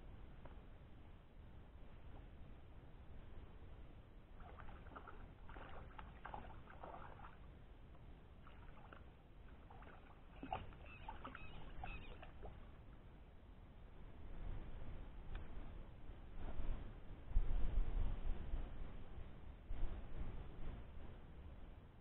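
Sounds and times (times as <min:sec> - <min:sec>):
low steady rumble: 0:00.0 - 0:22.0
water splashing: 0:04.4 - 0:07.5, 0:08.4 - 0:12.8.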